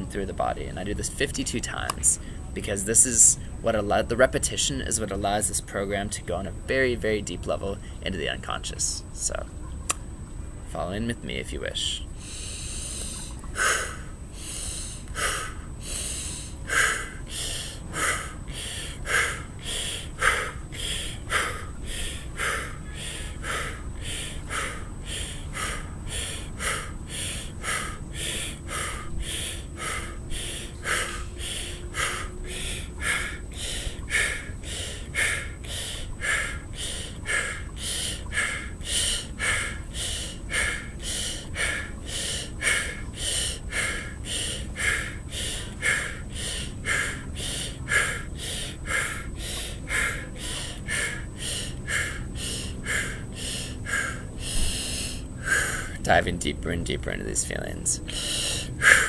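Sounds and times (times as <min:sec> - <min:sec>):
man breathing forcefully: 0:12.2 - 0:56.2, 0:58.0 - 0:59.0.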